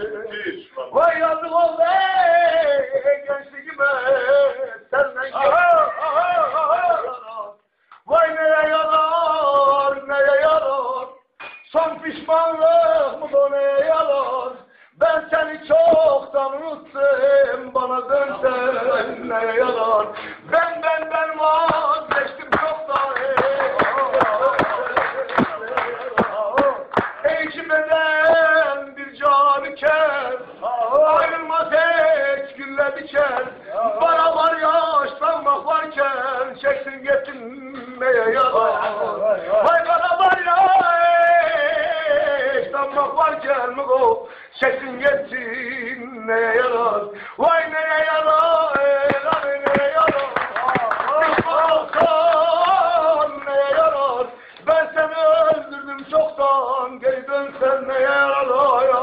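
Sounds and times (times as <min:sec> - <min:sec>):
man singing ornamented notes: 0:00.0 - 0:59.0.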